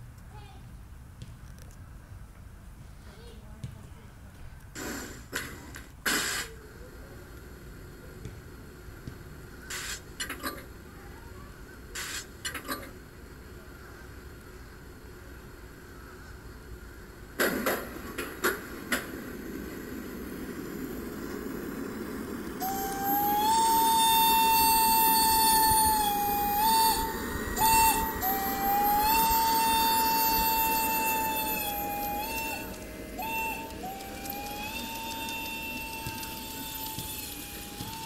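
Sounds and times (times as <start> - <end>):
model train wheels rolling: 9.6 - 38.0
high whine: 15.3 - 38.0.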